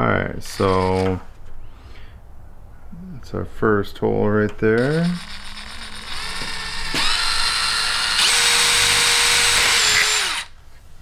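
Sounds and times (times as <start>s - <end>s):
cordless drill motor whine: 4.8s - 10.5s.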